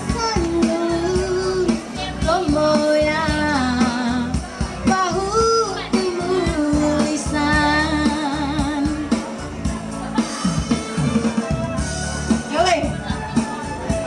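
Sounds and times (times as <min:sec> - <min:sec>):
recorded backing track: 0:00.0 - 0:14.0
woman singing karaoke: 0:00.0 - 0:14.0.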